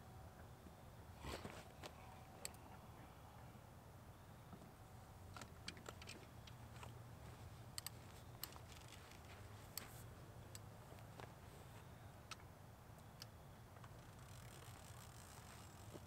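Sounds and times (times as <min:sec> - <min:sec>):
fishing reel clicks and ticks: 0:13.2 - 0:16.0.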